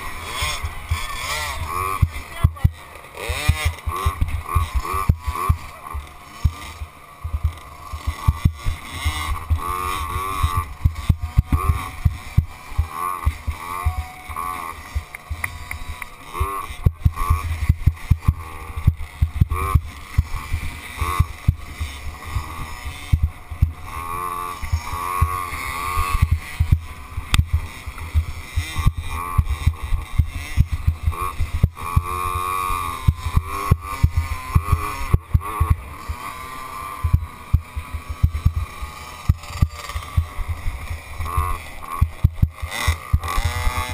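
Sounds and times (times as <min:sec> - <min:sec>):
dirt bike engine revving: 0:00.0 - 0:43.9.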